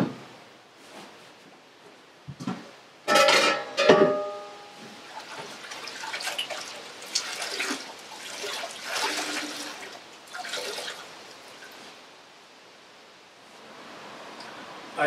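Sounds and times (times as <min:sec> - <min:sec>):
water sloshing and dripping: 0:04.9 - 0:12.0.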